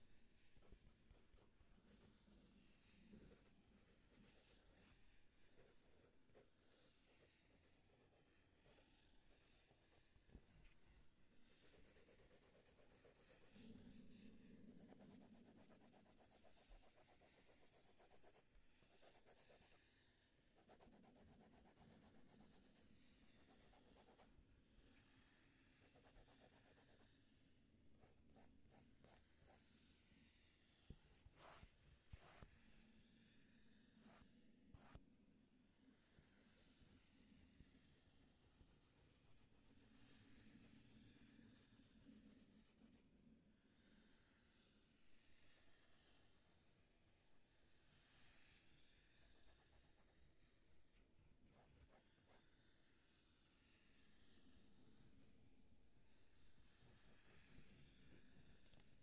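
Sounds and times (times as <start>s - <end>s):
drawing strokes scratching: 0.6s - 10.5s, 11.4s - 14.2s, 14.8s - 19.8s, 20.6s - 24.3s, 25.8s - 27.1s, 28.0s - 29.6s, 31.2s - 32.4s, 34.0s - 34.2s, 34.8s - 35.0s, 38.5s - 43.0s.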